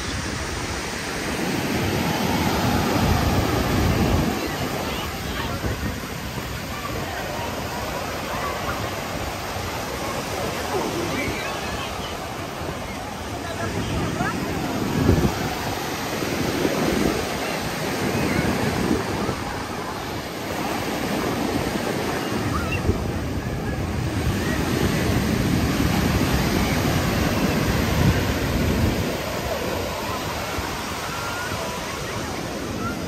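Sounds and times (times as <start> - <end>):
ocean surf washing onto beach: 0.0 - 33.0
wind buffeting microphone: 8.7 - 19.9.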